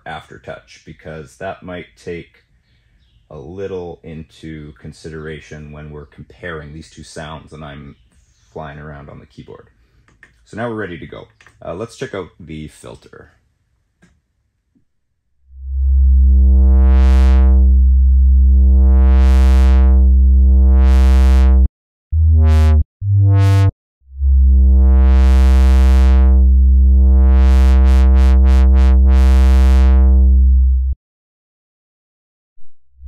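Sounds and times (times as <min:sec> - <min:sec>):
synth bass with filter sweeps: 0:15.5 - 0:31.0.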